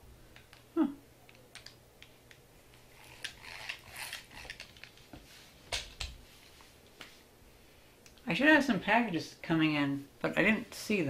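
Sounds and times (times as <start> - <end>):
metal drill rattling and clicking: 3.0 - 5.0.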